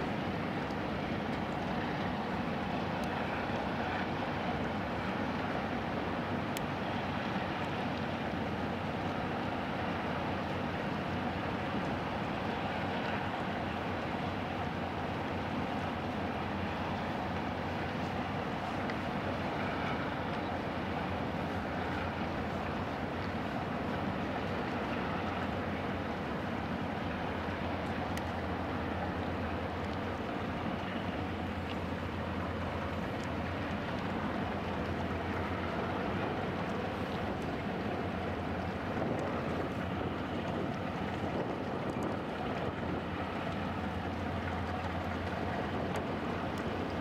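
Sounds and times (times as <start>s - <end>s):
ship engines rumbling: 0.0s - 47.0s
wind noise: 37.8s - 43.6s.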